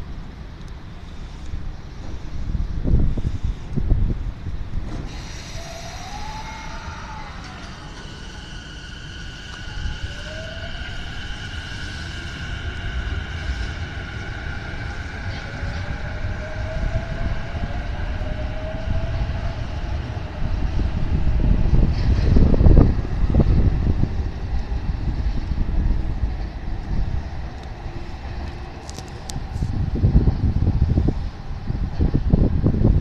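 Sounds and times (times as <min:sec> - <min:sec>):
wheels rumbling on rails: 0:00.0 - 0:33.0
wind hitting microphone: 0:00.0 - 0:33.0
electric train motor whine: 0:05.0 - 0:25.2.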